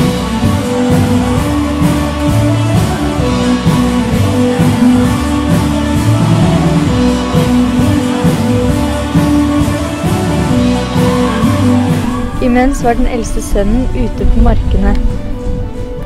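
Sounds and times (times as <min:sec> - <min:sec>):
music with beat and guitar: 0:00.0 - 0:12.4.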